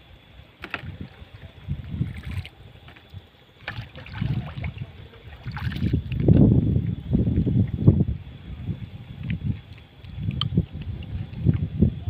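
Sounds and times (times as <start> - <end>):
paddle splashing in water: 2.0 - 6.2
dull low rumbles: 4.0 - 12.0.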